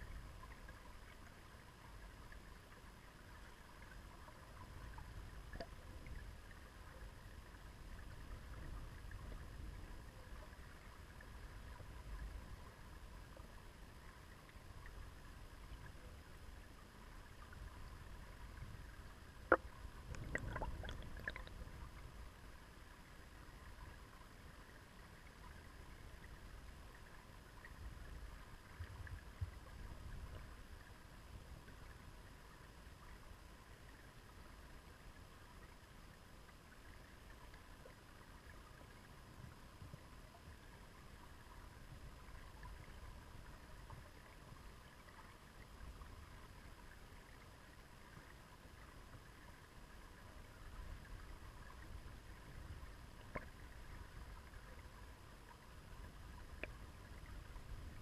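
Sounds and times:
muffled underwater water flow: 0:00.0 - 0:58.0
small ticks: 0:56.5 - 0:56.8.

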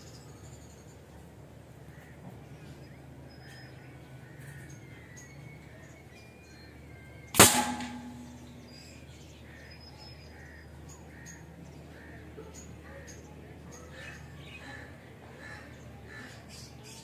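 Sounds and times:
air gun shot: 0:07.4 - 0:08.8
crows calling: 0:07.8 - 0:13.2, 0:13.9 - 0:16.7.

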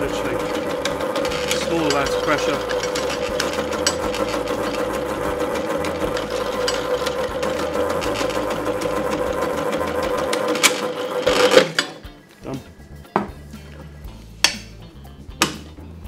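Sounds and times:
food processor motor hum: 0:00.0 - 0:12.1.

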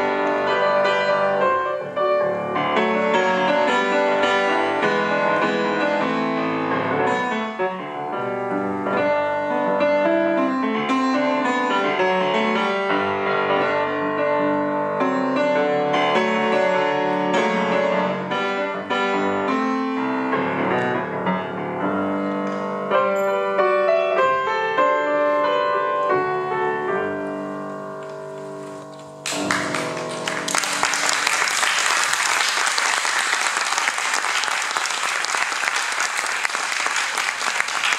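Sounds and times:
solo piano folk dance piece: 0:00.0 - 0:37.9
audience applause: 0:29.2 - 0:37.9.

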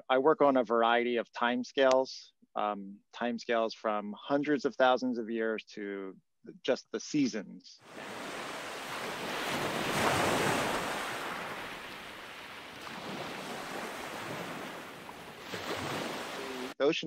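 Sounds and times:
ocean waves washing in: 0:07.8 - 0:16.8.

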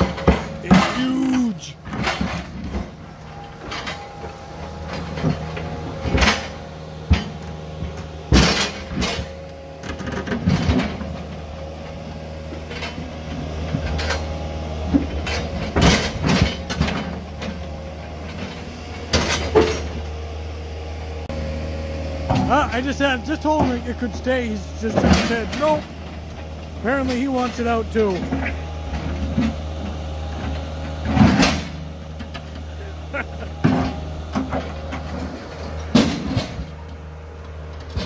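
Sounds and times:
diesel engine running: 0:00.0 - 0:38.0.

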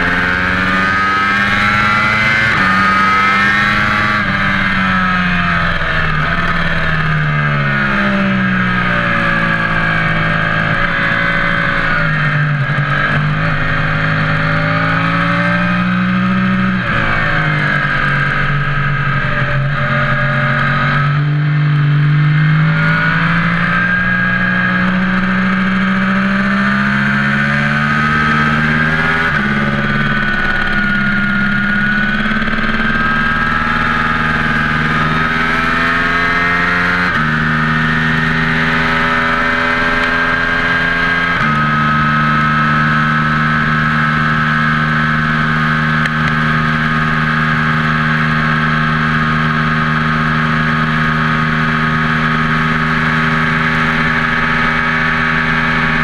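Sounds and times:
engine running: 0:00.0 - 0:56.0.

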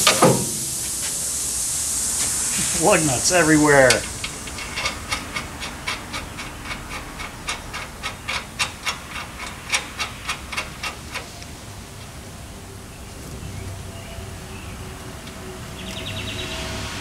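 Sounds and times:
steady hiss: 0:00.0 - 0:17.0
light metallic clicks of lug nuts: 0:03.9 - 0:12.1.

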